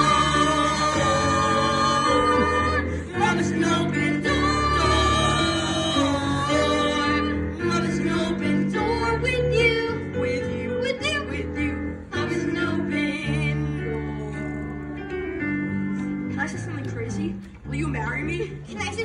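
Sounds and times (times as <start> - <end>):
young performers singing duet: 0.0 - 15.0
ensemble singing: 0.0 - 15.6
musical accompaniment: 0.0 - 19.0.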